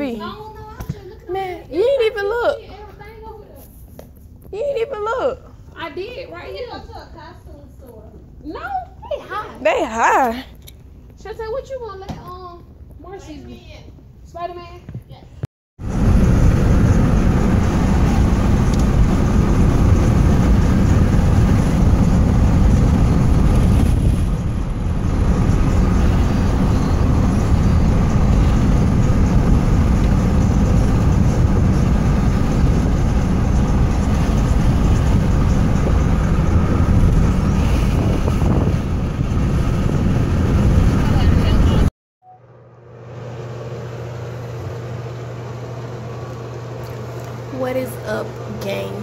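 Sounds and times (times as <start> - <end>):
car road and engine noise: 15.8 - 41.9.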